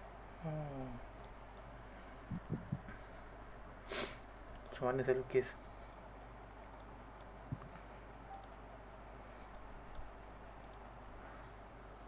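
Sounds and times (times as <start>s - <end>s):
steady low hum: 0.0s - 12.0s
soft low bump: 2.3s - 3.0s
computer mouse clicks: 6.7s - 8.6s, 9.5s - 10.9s.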